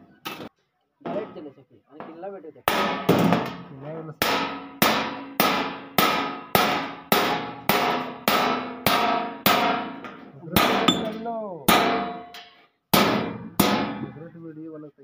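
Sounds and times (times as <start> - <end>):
hammer striking chisel on sheet metal: 2.7 - 3.6, 4.2 - 14.1.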